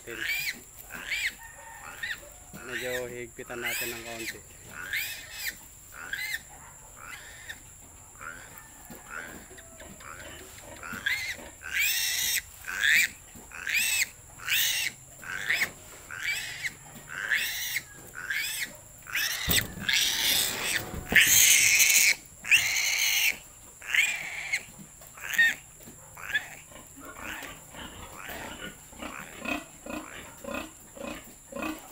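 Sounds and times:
piglet squealing: 0.2 - 7.6, 10.9 - 25.6, 26.2 - 26.6.

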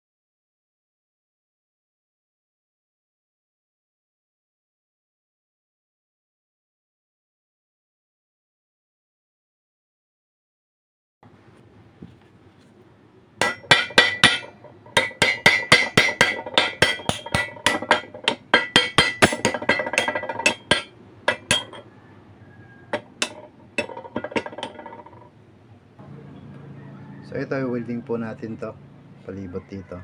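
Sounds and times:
hammer striking steel pipe: 13.4 - 21.8, 22.9 - 25.1.

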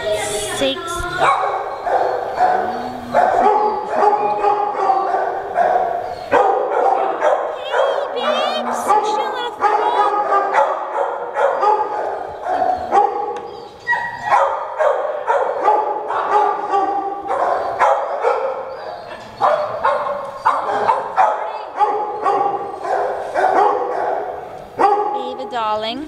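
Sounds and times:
dogs barking and yipping: 1.0 - 25.7.

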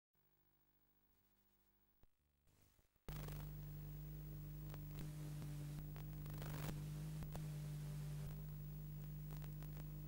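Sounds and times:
tape playback hum and hiss: 2.6 - 10.0
faint clicks and crackles: 3.1 - 10.0.

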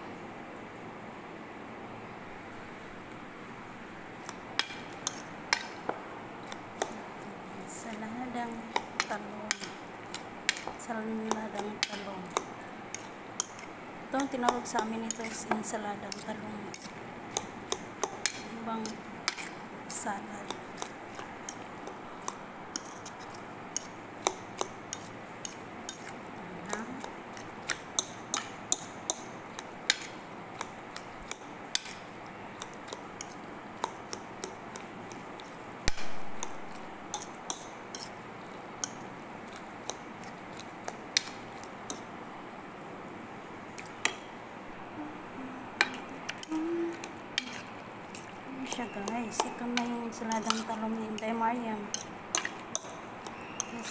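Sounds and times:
spoon clinking against bowl: 45.8 - 51.2, 51.8 - 53.9.

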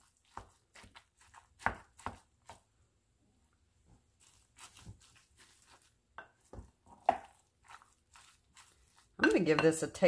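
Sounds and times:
soft scraping and squishing: 0.0 - 2.7, 3.4 - 9.8
utensil knocking on bowl: 9.2 - 9.9.

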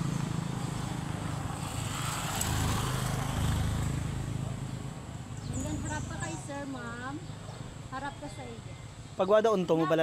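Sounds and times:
vehicle engine running steadily: 0.0 - 2.1.

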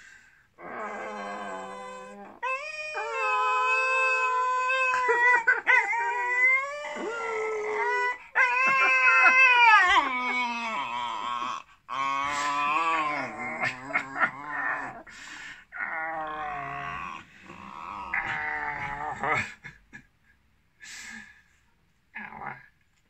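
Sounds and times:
small dog howling: 0.6 - 15.0.

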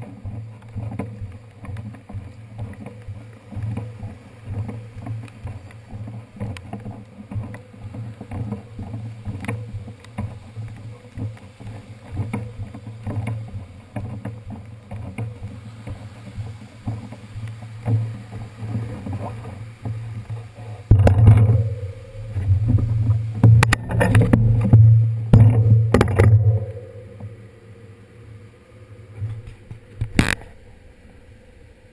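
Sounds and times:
bicycle knocking and rubbing: 0.0 - 26.7
muffled low rumbling: 12.3 - 29.9.

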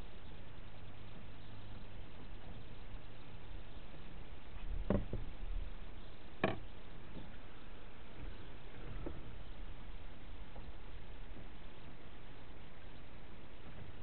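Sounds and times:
wind rumble on microphone: 0.0 - 14.0
short knocks: 4.8 - 5.3.

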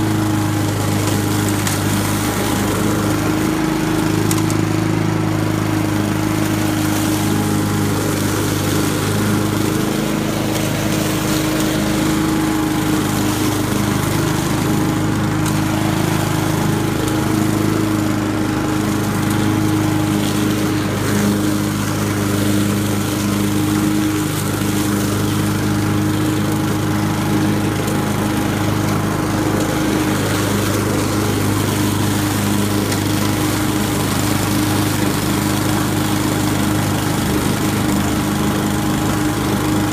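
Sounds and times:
lawn mower engine running: 0.0 - 39.9.

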